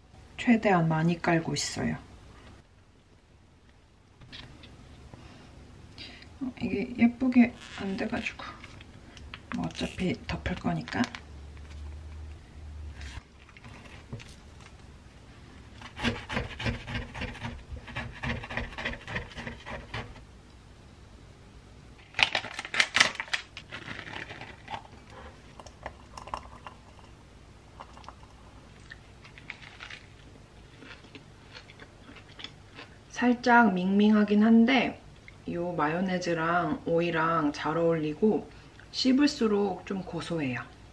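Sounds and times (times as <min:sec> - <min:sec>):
knife sawing through toast: 0:15.8 - 0:20.2
soft rubbing and squeezing: 0:23.6 - 0:25.5.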